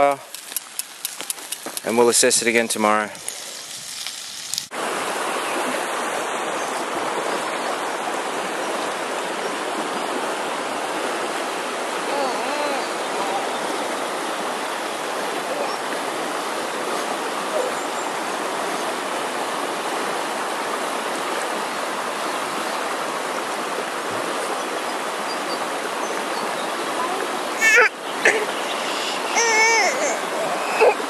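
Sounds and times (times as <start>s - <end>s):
flooded river rushing: 0.0s - 31.0s
person calling out: 12.0s - 13.5s, 27.0s - 31.0s.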